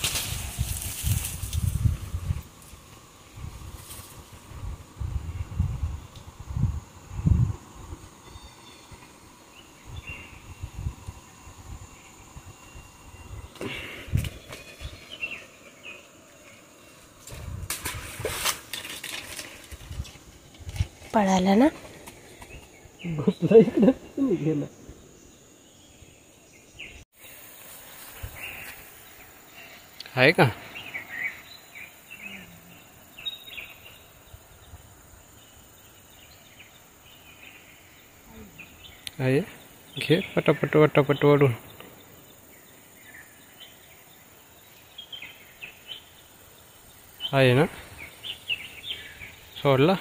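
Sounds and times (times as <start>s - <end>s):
faint high chirps: 8.2s - 9.1s.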